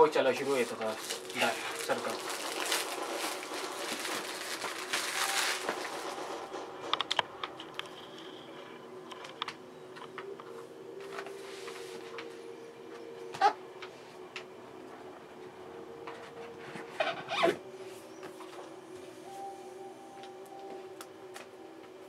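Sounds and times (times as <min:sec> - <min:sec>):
faint steady hum: 0:00.0 - 0:22.0
plastic shrink-wrap crinkling: 0:00.1 - 0:06.6.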